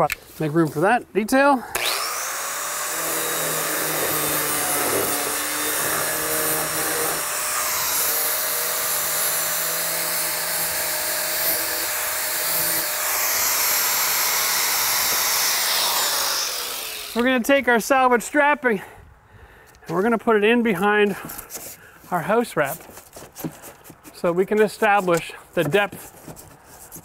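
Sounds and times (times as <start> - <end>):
angle grinder cutting siding: 0.7 - 18.5.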